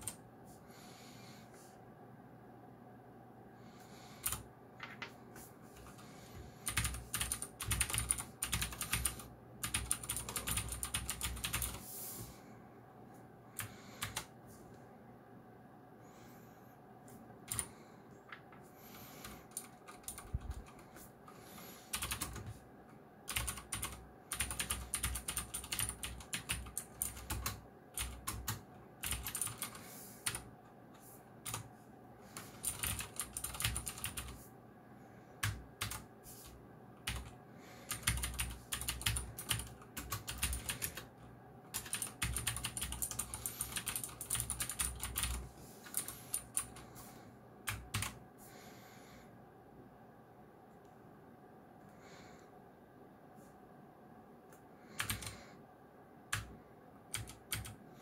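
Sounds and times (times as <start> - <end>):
mechanical keyboard typing: 4.2 - 5.2, 6.6 - 11.8, 13.6 - 14.3, 17.5 - 17.7, 19.5 - 21.0, 21.9 - 22.6, 23.3 - 30.5, 31.4 - 31.7, 32.4 - 34.4, 35.4 - 36.0, 37.0 - 37.3, 37.9 - 41.1, 41.7 - 46.8, 47.7 - 48.2, 55.0 - 55.3, 57.1 - 57.8.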